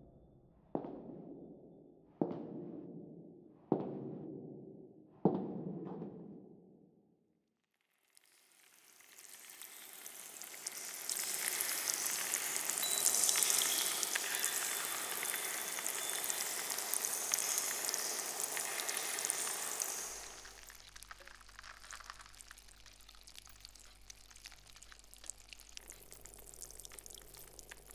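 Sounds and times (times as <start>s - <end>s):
water showering from watering can: 8.1s - 27.9s.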